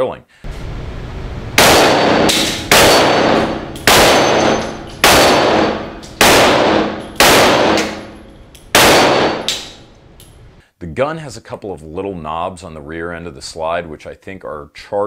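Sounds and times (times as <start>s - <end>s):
pistol shots echoing: 1.6s - 9.8s.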